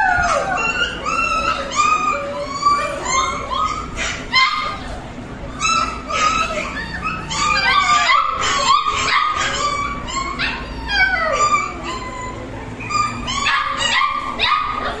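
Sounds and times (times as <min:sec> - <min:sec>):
puppies crying: 0:00.0 - 0:15.0.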